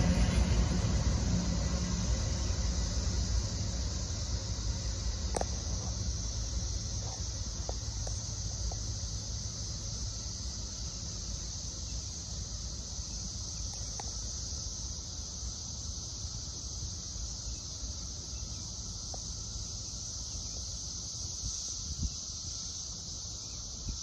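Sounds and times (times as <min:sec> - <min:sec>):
low rumble: 0:00.0 - 0:07.0
cicadas droning: 0:00.0 - 0:24.0.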